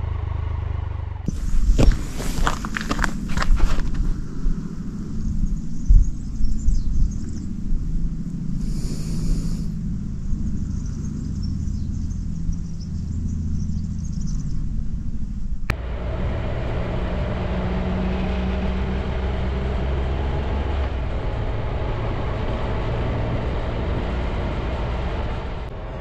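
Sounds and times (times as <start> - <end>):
motorcycle engine idling: 0.0 - 15.7
motorcycle riding: 0.0 - 26.0
wind and road noise: 0.0 - 26.0.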